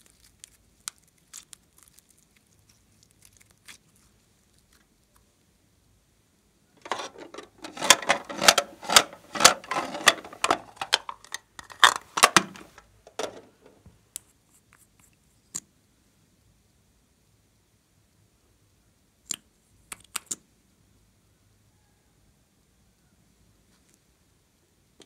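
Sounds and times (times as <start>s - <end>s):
plastic case clicks and rattles: 6.8s - 13.7s.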